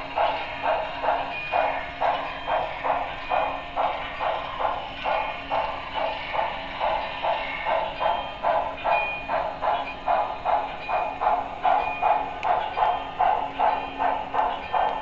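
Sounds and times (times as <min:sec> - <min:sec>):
steam locomotive exhaust chuffs: 0:00.0 - 0:15.0.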